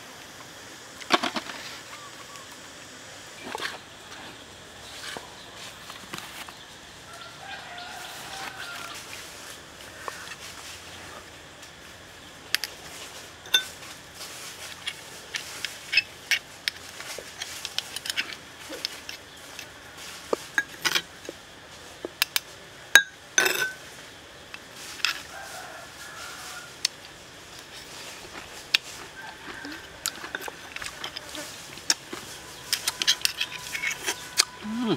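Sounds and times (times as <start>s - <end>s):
metal spoon scraping shells: 23.4s - 23.8s, 28.2s - 34.6s.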